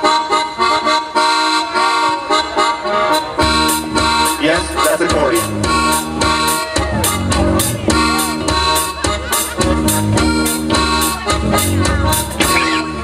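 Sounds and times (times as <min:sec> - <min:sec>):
bass: 0:00.0 - 0:13.0
sustained keyboard chords: 0:00.0 - 0:13.0
drum kit beat with cymbals: 0:03.4 - 0:13.0
electric guitar: 0:05.4 - 0:13.0.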